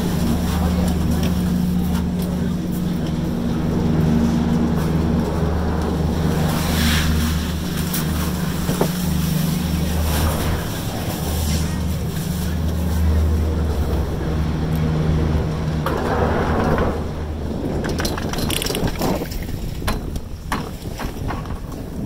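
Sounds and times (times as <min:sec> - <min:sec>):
chairlift machinery humming: 0:00.0 - 0:22.0
sharp clacks and clunks: 0:15.8 - 0:21.8.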